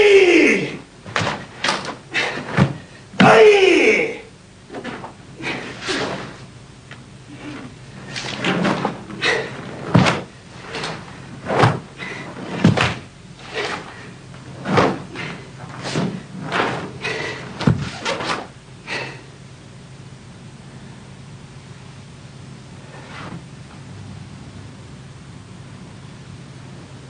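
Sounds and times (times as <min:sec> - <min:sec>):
bare feet stamping on wooden floor: 0:11.6 - 0:13.1.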